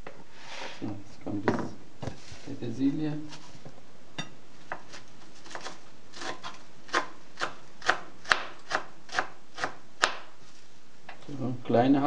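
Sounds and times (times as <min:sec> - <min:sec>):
knife chopping on cutting board: 0:04.7 - 0:10.3.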